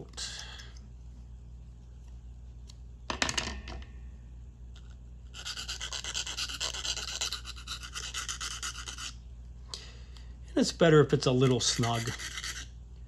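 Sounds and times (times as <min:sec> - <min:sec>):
needle file rasping plastic: 0:05.3 - 0:09.1, 0:11.6 - 0:12.7.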